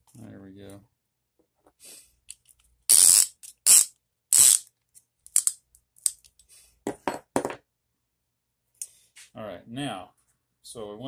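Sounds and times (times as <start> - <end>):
metallic rasps: 2.3 - 4.7.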